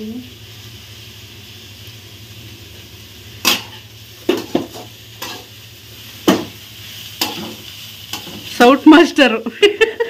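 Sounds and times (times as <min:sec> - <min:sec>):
vegetables sizzling in pan: 0:00.0 - 0:10.0
spatula scraping pan: 0:07.2 - 0:08.6.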